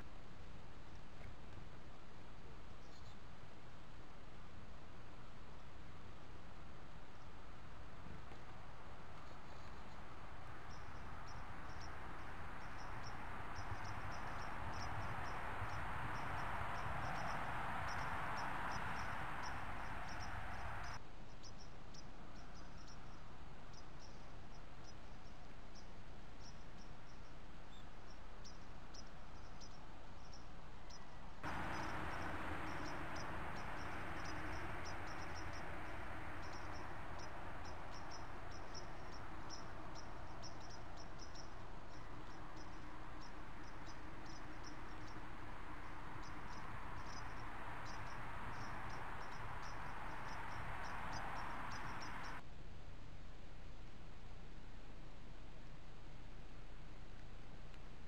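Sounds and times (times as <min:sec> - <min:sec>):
background hiss: 0:00.0 - 0:58.0
insects chirping: 0:09.2 - 0:52.4.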